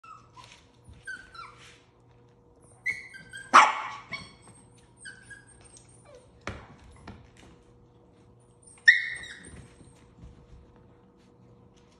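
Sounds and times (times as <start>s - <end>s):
puppies yipping: 2.7s - 6.4s, 8.6s - 9.7s
puppy barking: 3.2s - 4.4s.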